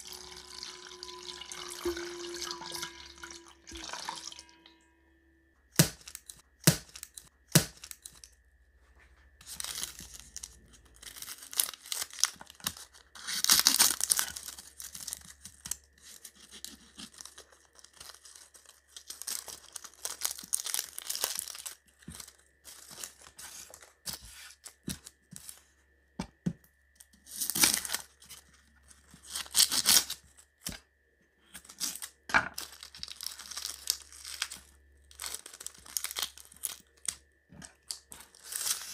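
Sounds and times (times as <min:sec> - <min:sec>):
packaging tearing and rustling: 0:09.4 - 0:25.6, 0:27.2 - 0:30.7, 0:31.6 - 0:38.9.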